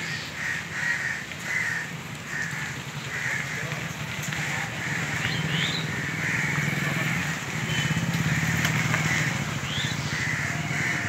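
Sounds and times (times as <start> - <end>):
crows cawing: 0.0 - 11.0
vehicle engine running: 2.3 - 11.0.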